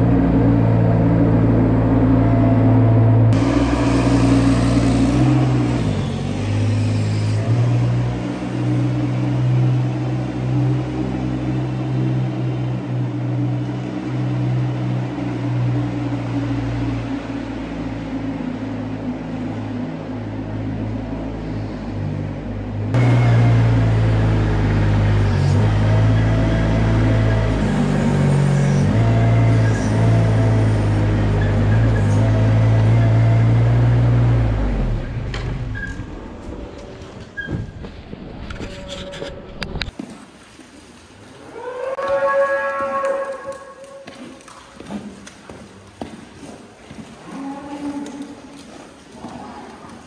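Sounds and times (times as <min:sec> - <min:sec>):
loader engine running: 0:00.0 - 0:38.6.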